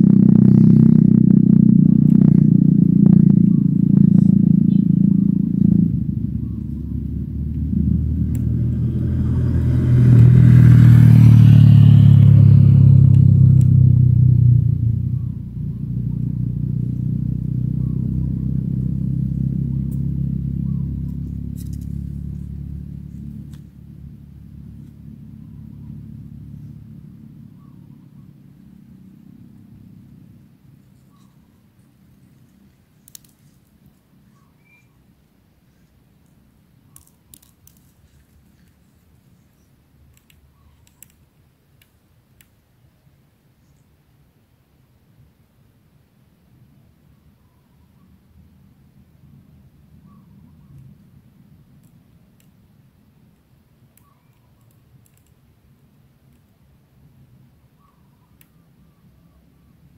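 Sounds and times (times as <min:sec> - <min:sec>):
vehicle engine running: 0:00.0 - 0:34.5.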